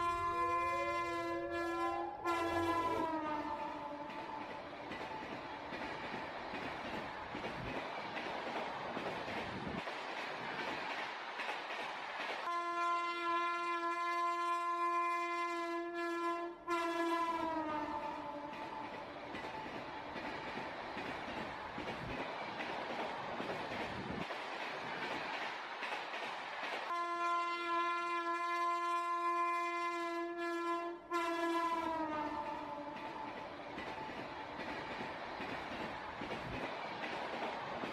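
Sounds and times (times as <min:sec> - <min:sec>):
train horn blast: 0:00.0 - 0:04.4, 0:12.4 - 0:18.8, 0:26.9 - 0:33.3
freight train wheels rumbling: 0:00.0 - 0:37.9.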